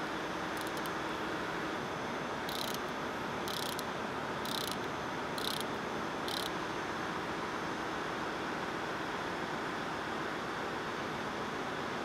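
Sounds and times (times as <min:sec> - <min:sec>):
background machinery noise: 0:00.0 - 0:12.0
ratchet wrench clicking: 0:00.6 - 0:00.9, 0:02.5 - 0:02.9, 0:03.5 - 0:05.7, 0:06.3 - 0:06.5.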